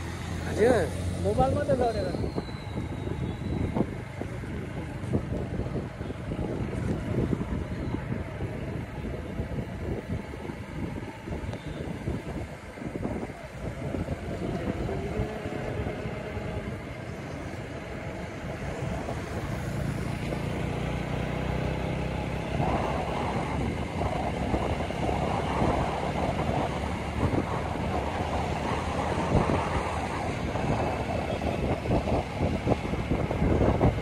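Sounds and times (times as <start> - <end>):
wind rushing over microphone: 0.0 - 34.0
motorcycle engine: 13.8 - 34.0.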